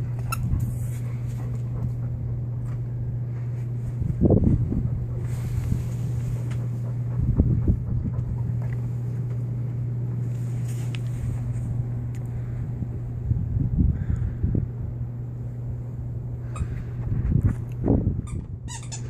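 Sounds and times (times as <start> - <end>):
low hum: 0.0 - 19.0
wind rumbling on microphone: 3.7 - 9.1, 11.1 - 18.8.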